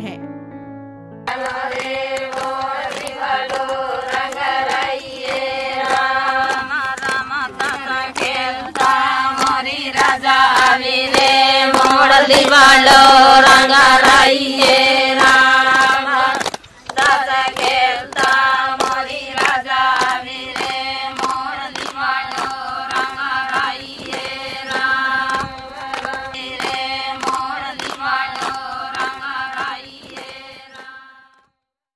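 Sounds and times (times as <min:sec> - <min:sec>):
person singing: 0:00.0 - 0:00.3
percussion beat: 0:01.3 - 0:31.0.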